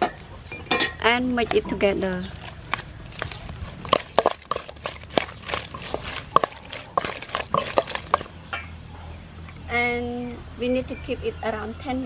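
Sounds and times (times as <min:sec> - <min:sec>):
wet squishing of shrimp: 0:02.0 - 0:08.3.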